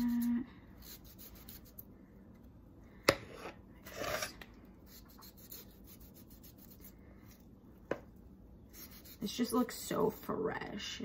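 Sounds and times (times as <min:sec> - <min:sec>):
knife scraping cut: 0:03.1 - 0:06.9.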